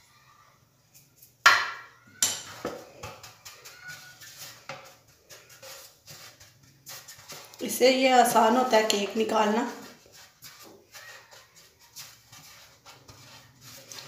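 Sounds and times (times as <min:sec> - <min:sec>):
metal tray banging on countertop: 0:01.5 - 0:02.8.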